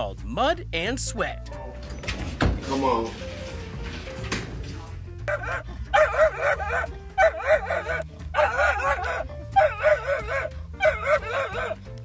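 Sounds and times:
background music with bass: 0.0 - 12.0
dog barking: 5.3 - 11.8.

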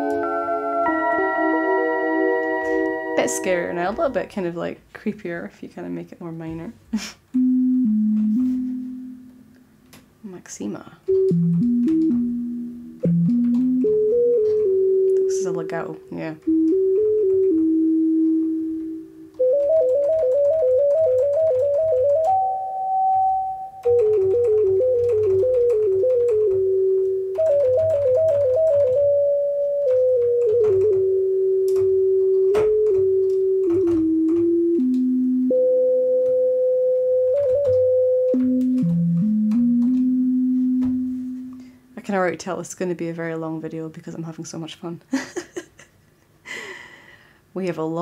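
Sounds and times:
synth lead melody: 0.0 - 4.1, 7.4 - 9.6, 11.1 - 41.8.

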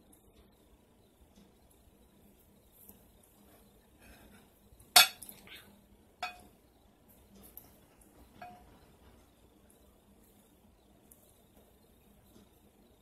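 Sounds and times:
ceramic dishes clinking: 5.0 - 5.4, 6.2 - 6.5, 8.4 - 8.7.

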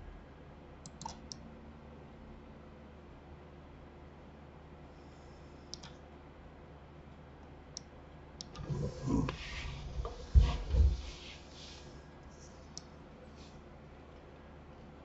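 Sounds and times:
computer mouse clicks: 0.8 - 1.4, 5.7 - 6.0, 12.7 - 12.9
low bumps and rustling: 8.7 - 11.7.

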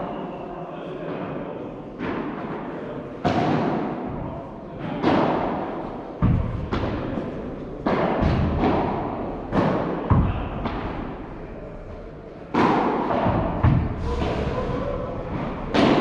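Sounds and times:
padel rackets hitting ball: 3.2 - 4.2, 4.8 - 11.2, 12.5 - 14.4, 15.2 - 16.0.

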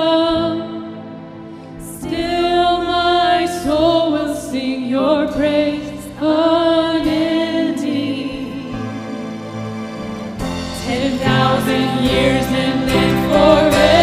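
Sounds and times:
instrumental accompaniment: 6.1 - 14.0
group singing a slow song: 10.8 - 14.0.

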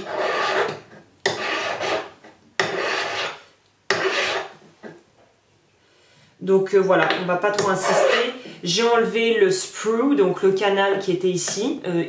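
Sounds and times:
hand file on metal: 0.0 - 4.6, 7.6 - 8.4.

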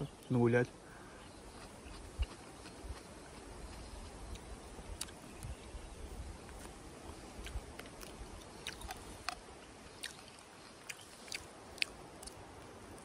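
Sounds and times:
person chewing food: 1.2 - 5.5, 7.4 - 9.4, 10.0 - 12.4.

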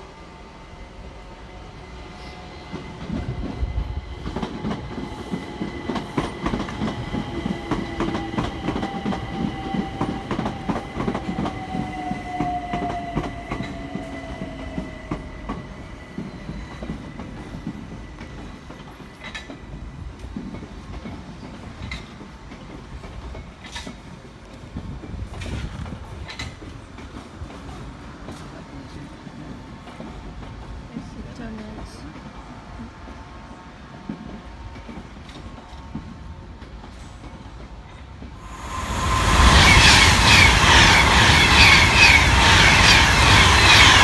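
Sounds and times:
train wheels clicking over rail joints: 14.8 - 28.5.

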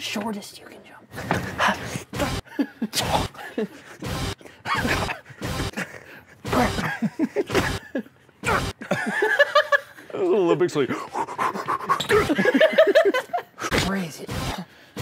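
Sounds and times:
person breathing sharply and gasping: 14.6 - 15.0.

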